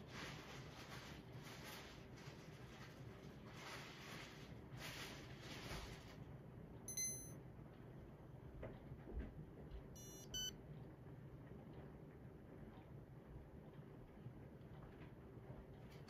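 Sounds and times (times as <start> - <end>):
electronic beeps: 6.9 - 7.4, 10.0 - 10.5.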